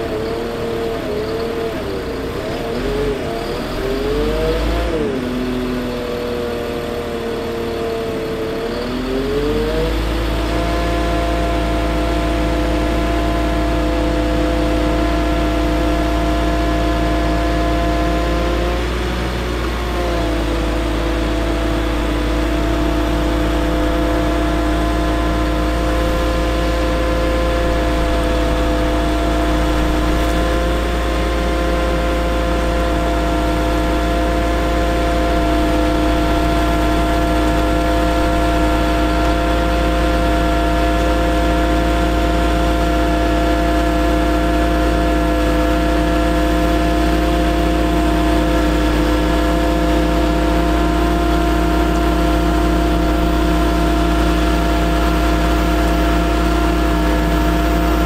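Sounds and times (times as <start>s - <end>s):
diesel engine running: 0.0s - 58.0s
hydraulic whine: 0.0s - 58.0s.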